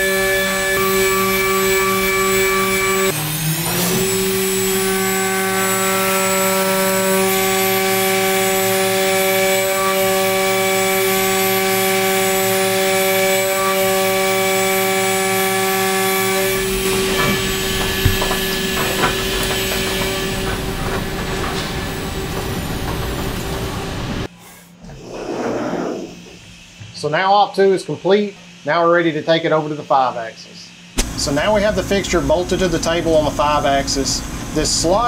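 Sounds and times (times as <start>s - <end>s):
milling machine cutting whine: 0.0s - 24.3s, 30.9s - 35.0s
sharp knocks: 16.4s - 23.4s.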